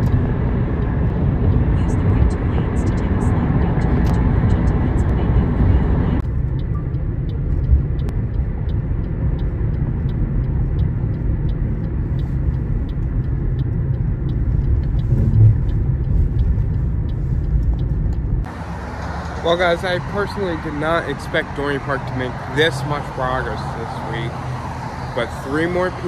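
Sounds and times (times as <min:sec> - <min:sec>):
car road and engine rumble: 0:00.0 - 0:26.0
faint regular ticking: 0:06.2 - 0:18.5, 0:25.2 - 0:26.0.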